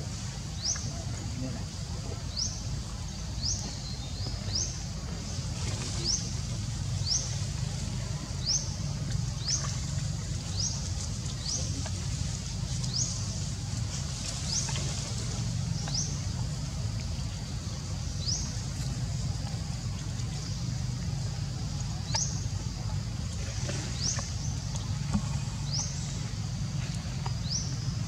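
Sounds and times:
low rumble: 0.0 - 28.0.

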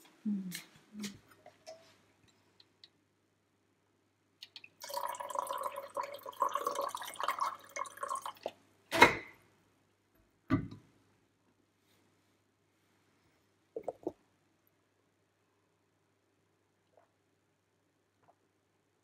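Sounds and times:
water pouring into a ceramic mug: 4.7 - 8.6.

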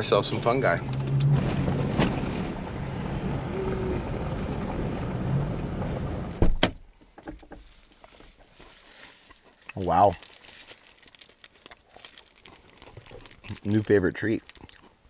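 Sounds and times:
vehicle driving on gravel: 0.0 - 6.4.

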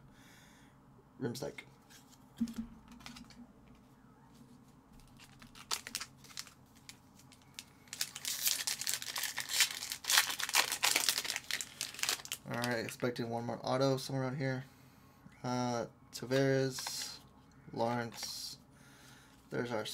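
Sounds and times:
card pack wrapper crinkling and tearing: 5.0 - 13.0, 16.7 - 17.2.

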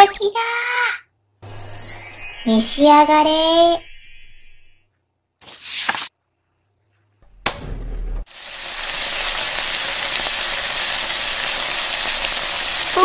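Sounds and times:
food frying in a pot: 8.2 - 13.0.

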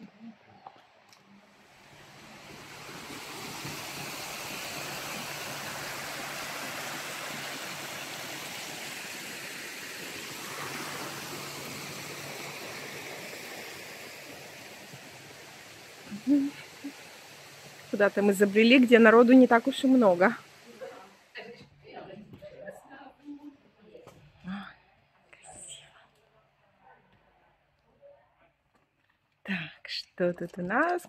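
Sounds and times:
steady rushing noise: 1.7 - 15.9.

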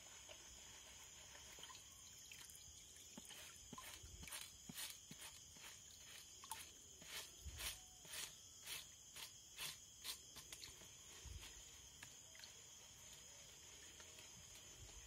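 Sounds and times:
water sloshing in a pan: 0.0 - 4.9
insect chorus: 0.0 - 15.0.

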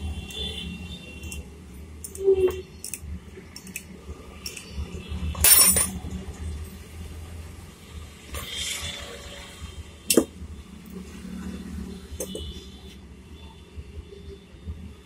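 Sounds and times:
metal tools clinking: 5.4 - 6.0
spanner clattering on bench: 5.4 - 6.0.

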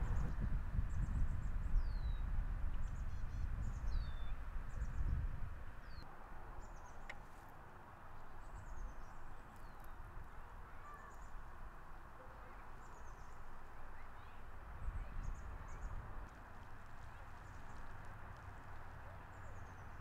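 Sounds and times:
low rumble: 0.0 - 2.4
small birds chirping: 0.0 - 5.2, 5.8 - 20.0.

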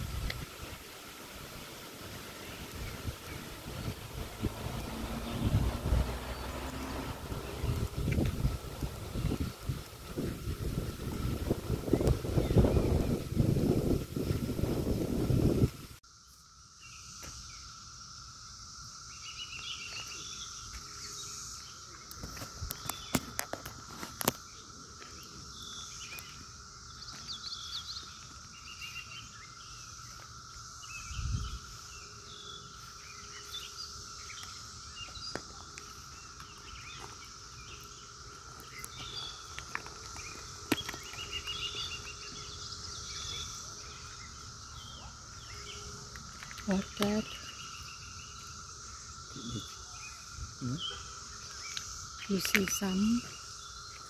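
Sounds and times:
wind buffeting microphone: 0.0 - 1.8, 2.4 - 16.0, 31.0 - 31.7
cicada chorus drone: 0.0 - 54.0
high insect hiss: 0.0 - 54.0
bird chirps: 30.9 - 54.0.

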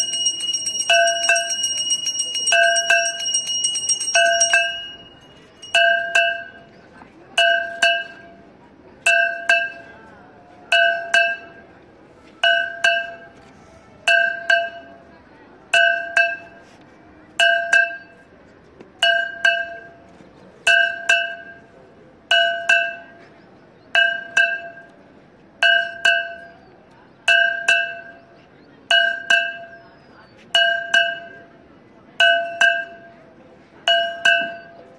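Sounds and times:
metal bell ringing: 0.0 - 6.7.

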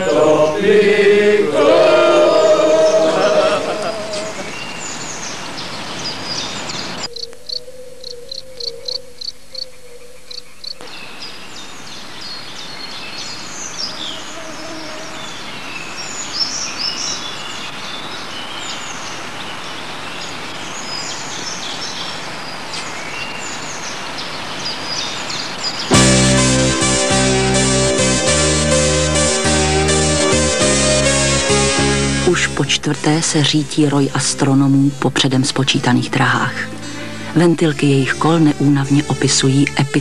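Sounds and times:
birds chirping and trilling: 1.9 - 14.5
steady hiss: 25.9 - 32.3.

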